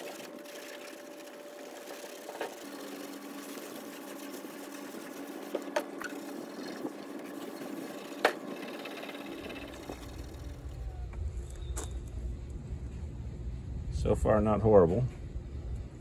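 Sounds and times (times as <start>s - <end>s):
low rumble: 9.9s - 16.0s.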